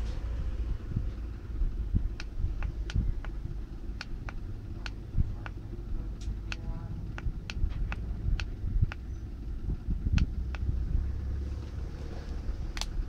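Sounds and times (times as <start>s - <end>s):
low rumbling handling noise: 0.0s - 13.0s
light plastic ticks and clicks: 2.0s - 3.4s, 4.0s - 9.1s, 10.1s - 10.7s.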